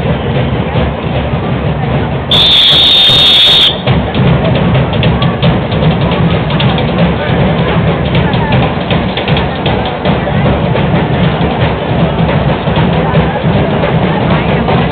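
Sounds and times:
drum band pounding beat: 0.0s - 14.9s
high whistle blast: 2.3s - 3.8s.

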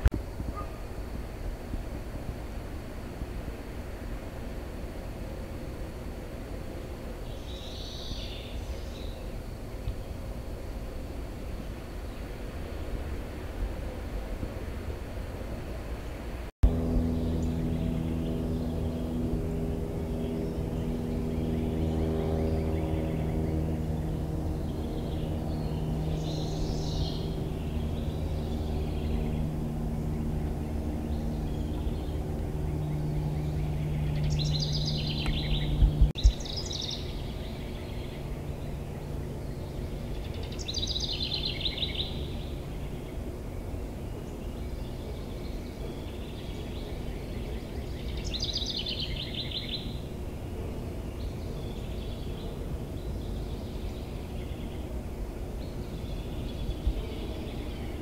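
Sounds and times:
steady low hum: 0.0s - 58.0s
songbird trilling: 7.2s - 9.4s, 20.1s - 43.3s, 44.1s - 50.1s.

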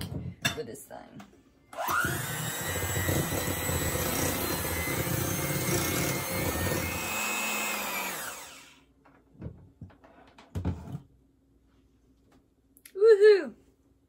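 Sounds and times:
electric hand mixer running: 1.8s - 8.8s.

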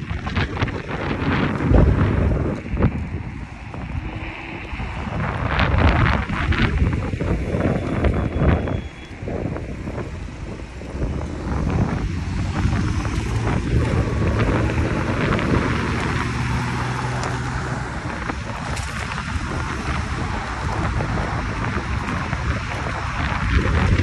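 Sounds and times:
car engine running: 0.0s - 24.0s
wind buffeting microphone: 0.0s - 24.0s.

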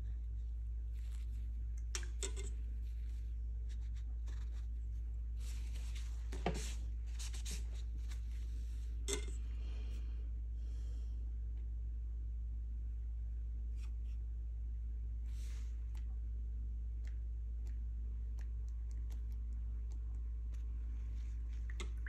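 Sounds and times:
low electrical hum: 0.0s - 22.0s
paintbrush stroking on paper: 2.8s - 8.8s.

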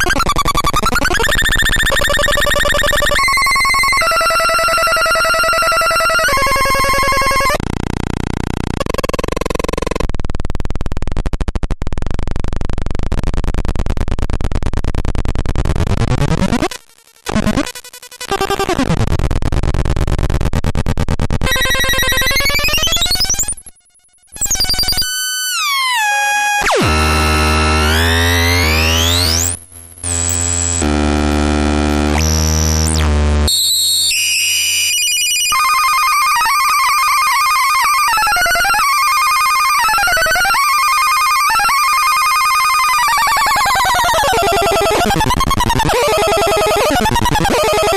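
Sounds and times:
electronic beeping and warbling: 0.0s - 7.6s, 8.6s - 10.0s, 21.4s - 47.9s
harsh electronic buzzing drone: 17.3s - 47.9s
high electronic whistle: 21.5s - 23.6s, 24.4s - 25.8s, 33.5s - 47.9s
harsh pulsing electronic buzz: 26.6s - 34.8s, 43.1s - 47.9s.

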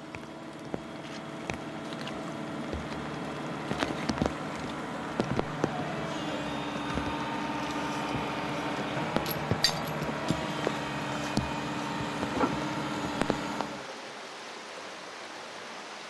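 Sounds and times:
diesel engine running: 0.0s - 13.8s
knocks and clanks: 9.0s - 13.7s.

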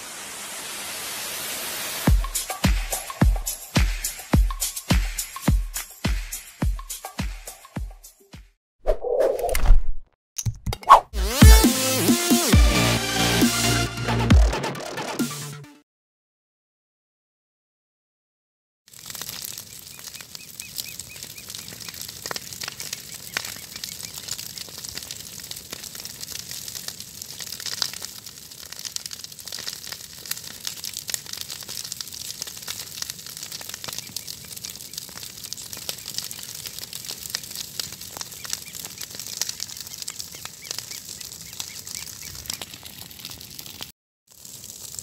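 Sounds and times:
burning vegetation crackling: 18.9s - 45.0s
fire popping: 18.9s - 45.0s.

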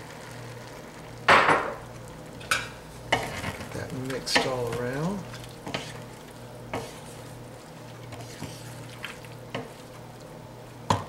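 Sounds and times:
food sizzling: 0.0s - 11.0s
wooden spoon stirring in pot: 1.8s - 11.0s.

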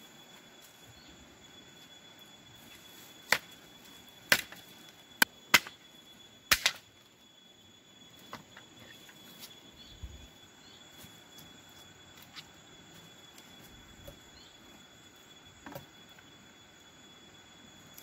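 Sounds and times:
high insect drone: 0.0s - 18.0s.

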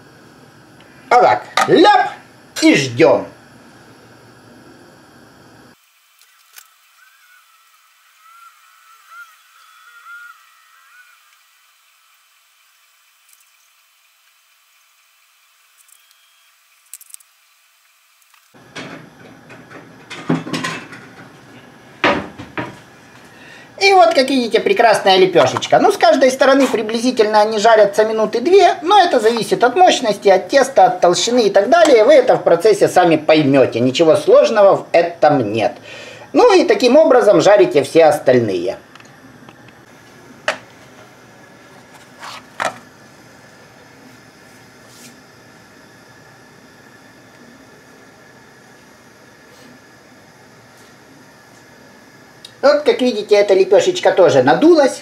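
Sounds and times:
kitchen knocks and clatters: 18.7s - 21.4s, 22.0s - 22.8s
steady faint hiss: 20.1s - 55.0s
flatbread swishing in pan: 41.7s - 42.6s, 44.0s - 45.3s.

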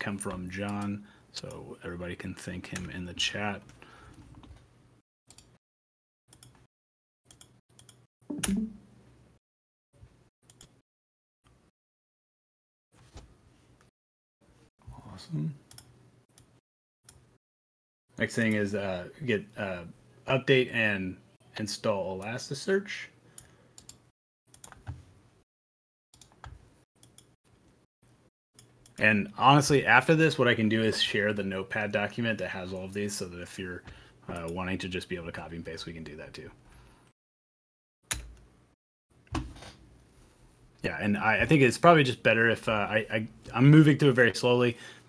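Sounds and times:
keyboard and mouse clicks: 5.3s - 5.6s, 6.3s - 6.7s, 7.3s - 8.8s, 10.4s - 10.8s, 23.8s - 25.0s.

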